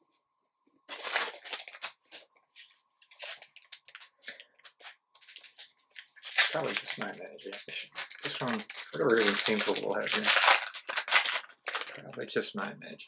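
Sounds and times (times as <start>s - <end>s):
foil wrappers crinkling: 0.9s - 12.0s.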